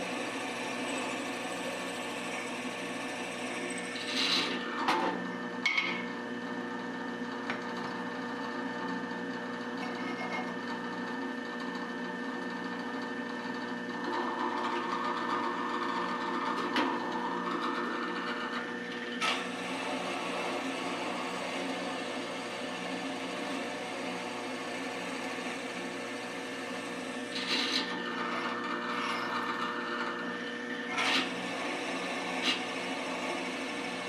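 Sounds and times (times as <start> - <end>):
drill cutting into steel: 0.0 - 4.8, 19.2 - 34.0
drill press motor hum: 0.0 - 34.0.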